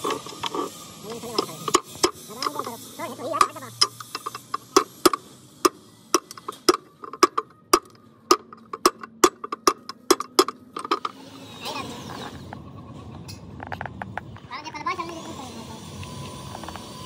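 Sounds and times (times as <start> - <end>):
hammer tapping a metal punch: 3.8 - 11.0.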